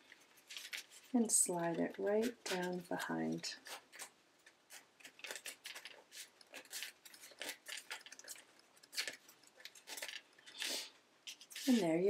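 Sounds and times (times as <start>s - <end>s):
rattan reed scraping basket spokes: 5.0s - 12.0s.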